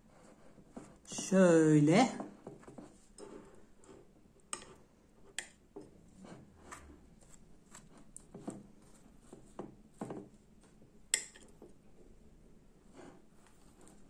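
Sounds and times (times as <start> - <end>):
knife scraping bread: 2.6 - 10.8, 12.8 - 14.0.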